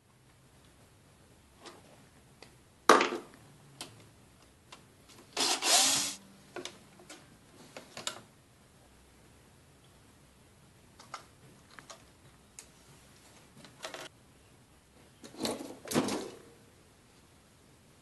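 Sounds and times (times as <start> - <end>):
cordless drill running: 5.4 - 6.2.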